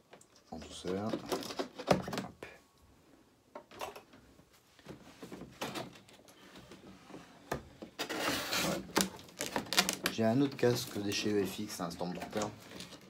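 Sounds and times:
cardboard scraping and rustling: 4.8 - 13.0.

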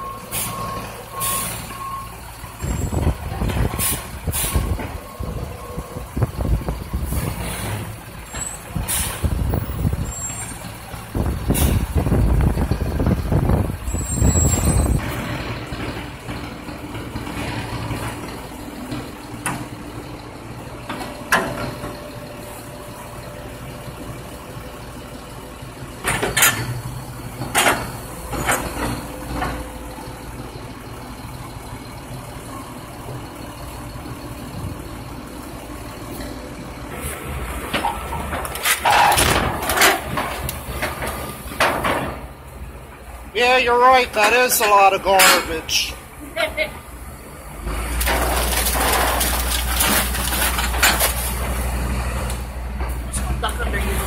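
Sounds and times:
garbage truck diesel engine: 0.0 - 54.0
metal clanks and bangs: 26.0 - 29.8, 37.6 - 42.5, 44.1 - 45.9, 47.9 - 51.6.

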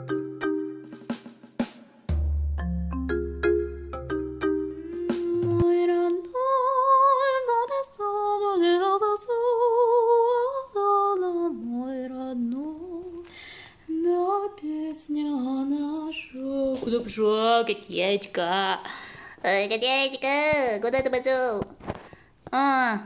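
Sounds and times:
woman singing with vibrato: 4.7 - 18.9.

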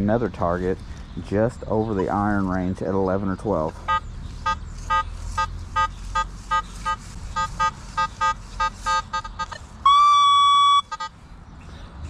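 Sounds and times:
metal detector beeps: 3.8 - 11.2
metal detector steady tone: 3.8 - 11.2.

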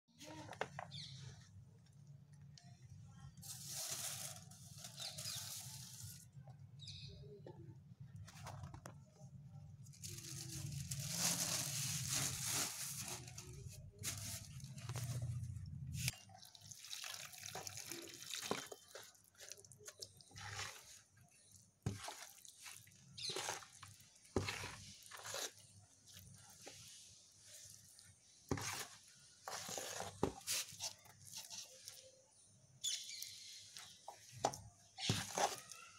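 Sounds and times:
water splashing into tub: 16.4 - 18.8
stick stirring wet cement: 17.5 - 32.4, 33.1 - 35.9.

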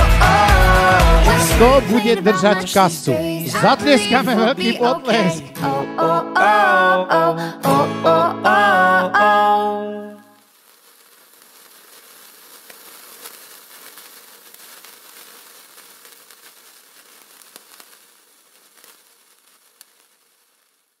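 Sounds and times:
sparklers hissing: 0.0 - 5.4, 10.2 - 21.0
sharp crackles: 10.3 - 21.0.

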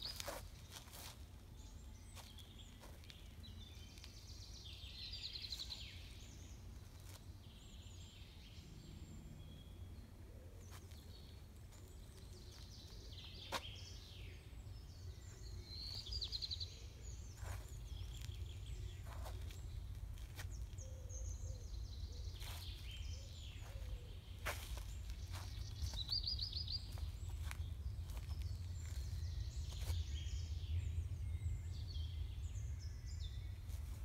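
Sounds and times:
shoes scuffing on concrete: 0.0 - 1.4, 2.2 - 3.4, 13.5 - 13.8, 17.4 - 18.4, 19.0 - 20.8, 23.6 - 30.0
steady low rumble: 23.6 - 34.0.

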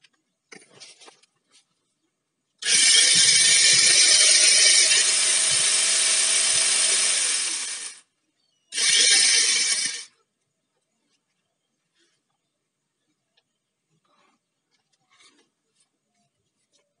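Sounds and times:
electric chainsaw motor whine: 2.6 - 8.0, 8.7 - 10.1.

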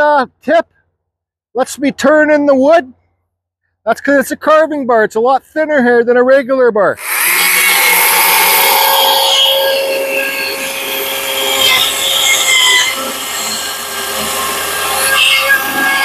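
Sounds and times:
battery chainsaw motor whine: 7.0 - 16.0.

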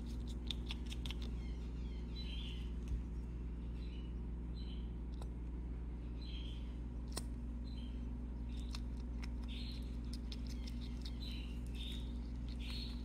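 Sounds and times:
steady low hum: 0.0 - 13.0
nestling birds begging chirps: 0.1 - 13.0.

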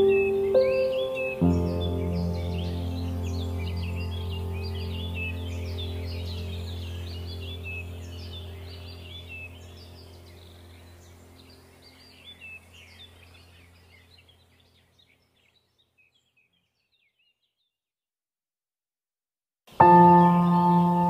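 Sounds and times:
low ambient music drone: 0.0 - 14.7
small birds chirping: 0.0 - 17.8, 19.7 - 21.0.

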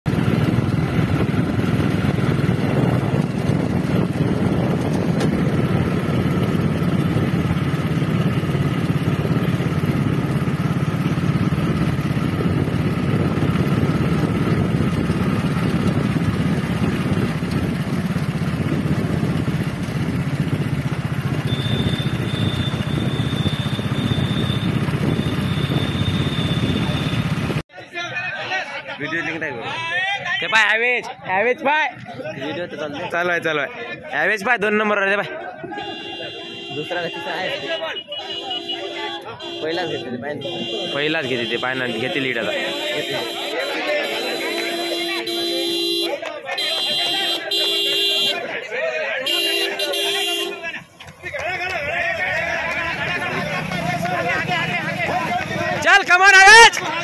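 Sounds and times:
motorcycle engine running: 0.1 - 27.6, 38.5 - 48.4, 49.3 - 57.0.

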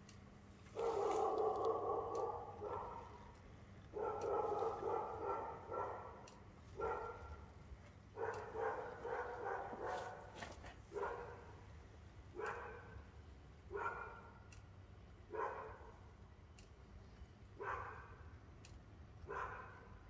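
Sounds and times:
dog barking: 0.7 - 3.3, 3.9 - 7.5, 8.1 - 11.6, 12.3 - 13.0, 13.7 - 14.4, 15.3 - 16.0, 17.6 - 18.2, 19.2 - 20.0.

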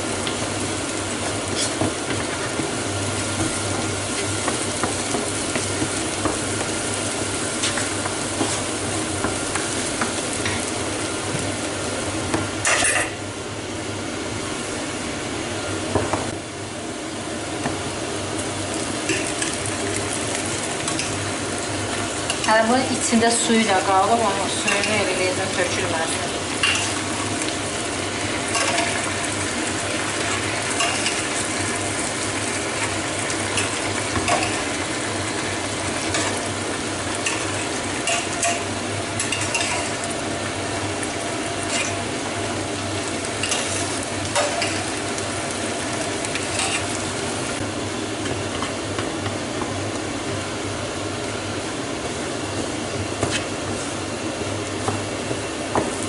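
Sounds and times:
food sizzling in a frying pan: 0.0 - 56.0.

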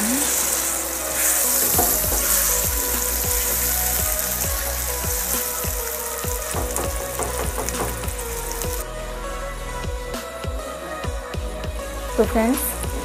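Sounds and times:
food sizzling in hot oil: 0.0 - 8.8
background music with steady beat: 0.0 - 13.0
spatula stirring in pan: 0.3 - 8.1.

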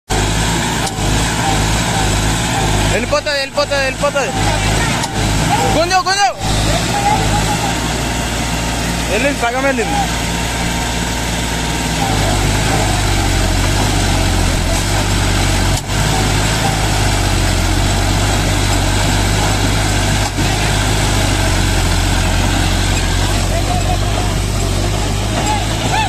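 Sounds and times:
tractor diesel engine straining: 0.1 - 26.0
voices in background: 2.9 - 10.6.

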